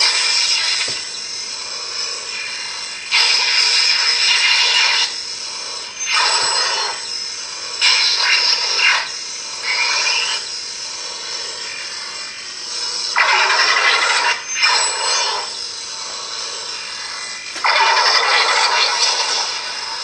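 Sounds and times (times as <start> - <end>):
noisy electric effect sounds: 0.0 - 5.1, 16.3 - 20.0
lightsaber blade humming: 0.0 - 20.0.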